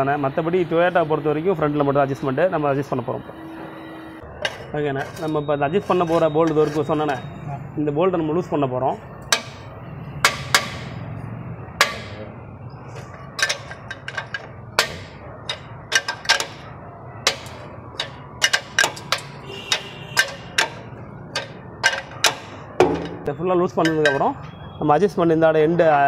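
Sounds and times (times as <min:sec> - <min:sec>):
spanner clinking against metal bolt: 0:12.9 - 0:24.6.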